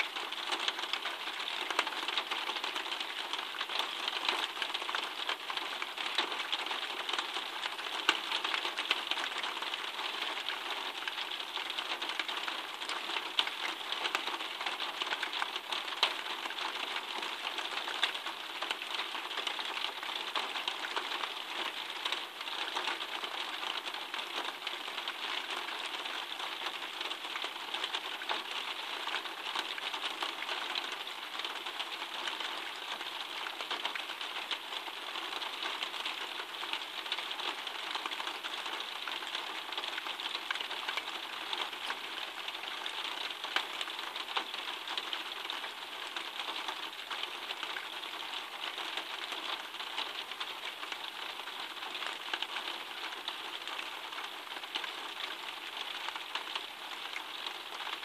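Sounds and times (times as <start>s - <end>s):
raindrops ticking on surfaces: 0.0s - 58.0s
steady rain falling: 0.0s - 58.0s.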